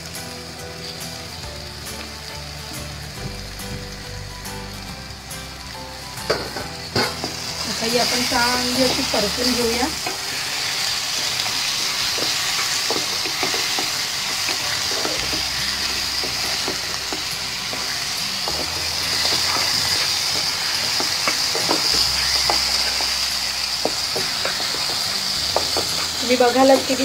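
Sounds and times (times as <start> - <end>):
prawns sizzling in oil: 0.0 - 27.0
spatula scraping pan: 6.4 - 27.0.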